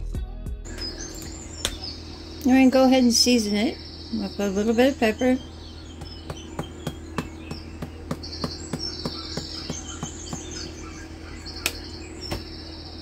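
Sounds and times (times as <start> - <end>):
small sharp clicks: 11.6 - 11.8.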